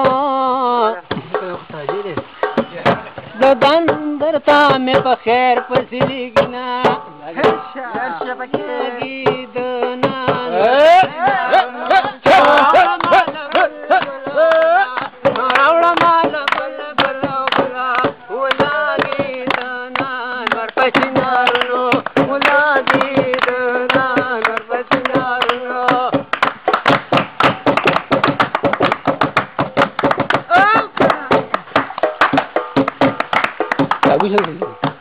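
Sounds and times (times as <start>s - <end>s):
man singing folk song: 0.0s - 26.4s
men clapping hands: 1.2s - 35.0s.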